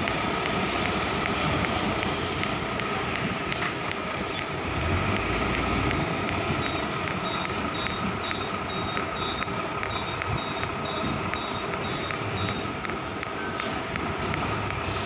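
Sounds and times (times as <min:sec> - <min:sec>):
rapid regular ticking: 0:00.0 - 0:15.0
truck diesel engine running: 0:00.0 - 0:15.0
short high beeps: 0:06.6 - 0:13.6.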